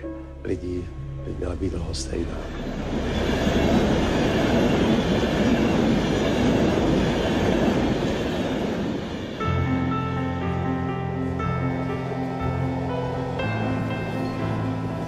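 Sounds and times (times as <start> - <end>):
music: 0.0 - 5.2, 9.3 - 15.0
train passing at speed: 1.3 - 15.0.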